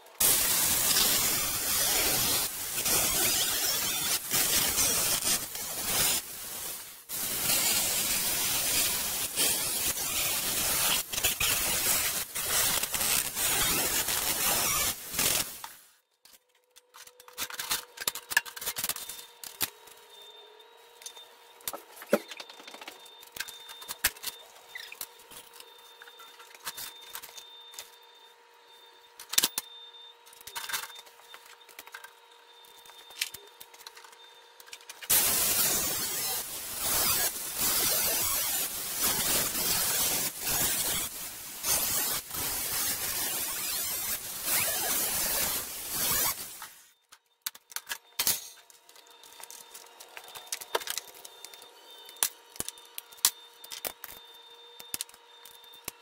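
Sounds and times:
angle grinder grinding metal: 0.2 - 15.7, 35.1 - 46.9.

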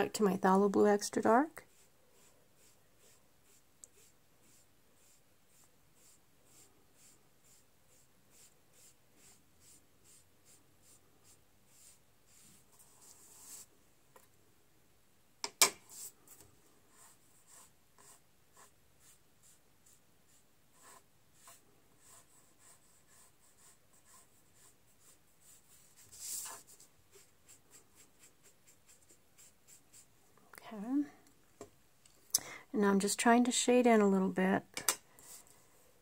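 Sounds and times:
sponge rubbing on paper: 1.6 - 13.7, 16.9 - 30.1.

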